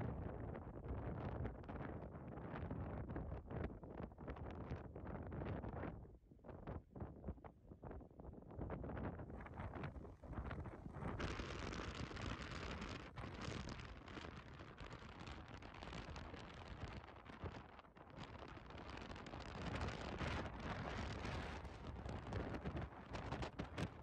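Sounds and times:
wind buffeting microphone: 0:06.6 - 0:24.0.

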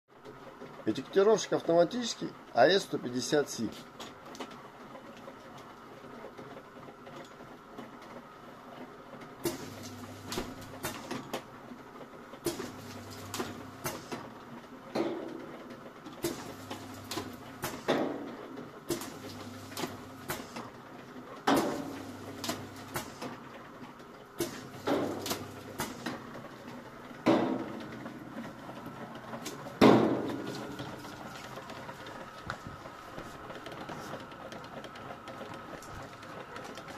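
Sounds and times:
conveyor clicks and knocks: 0:12.1 - 0:36.9.

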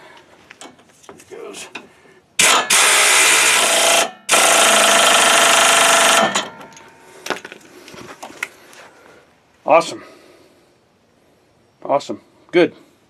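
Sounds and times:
pneumatic impact wrench hammering: 0:02.4 - 0:06.9.

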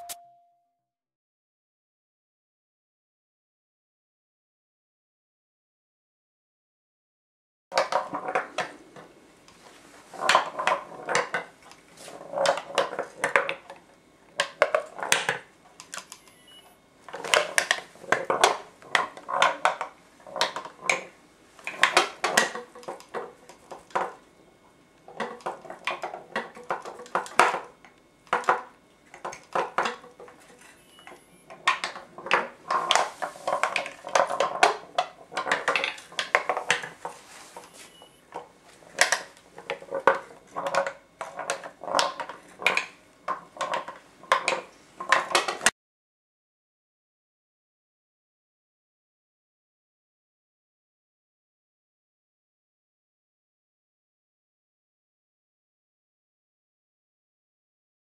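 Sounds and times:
ball clacking against wooden walls: 0:17.1 - 0:21.1, 0:21.7 - 0:24.2, 0:25.1 - 0:30.6, 0:31.5 - 0:37.2, 0:38.4 - 0:45.7.

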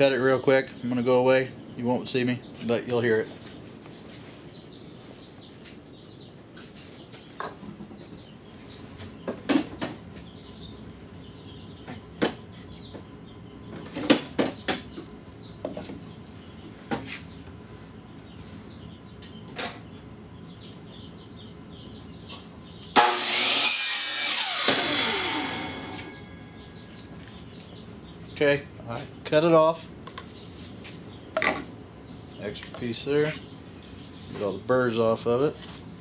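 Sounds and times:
faint bird chirping: 0:00.0 - 0:23.0, 0:26.0 - 0:29.8
saw cutting plastic pipe: 0:22.9 - 0:26.3.

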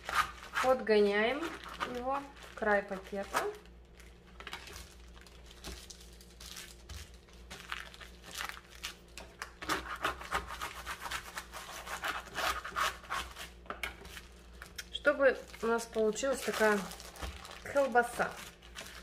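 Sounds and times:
plastic bag crinkling: 0:00.0 - 0:09.5, 0:14.2 - 0:19.0.

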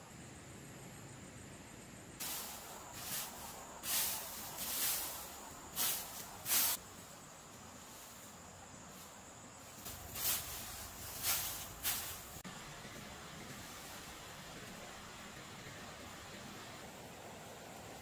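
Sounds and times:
dry grass rustling as raked: 0:02.2 - 0:12.5.

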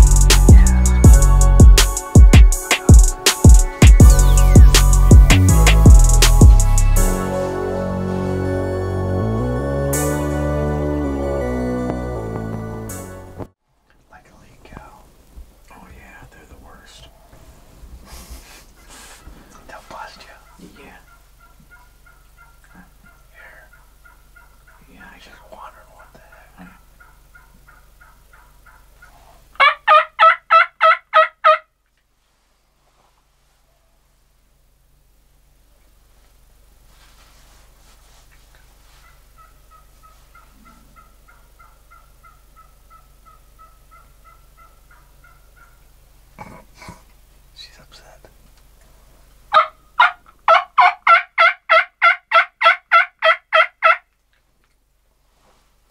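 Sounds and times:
wild turkey yelping: 0:20.4 - 0:24.8, 0:26.0 - 0:31.7, 0:39.0 - 0:46.0, 0:49.5 - 0:54.1.

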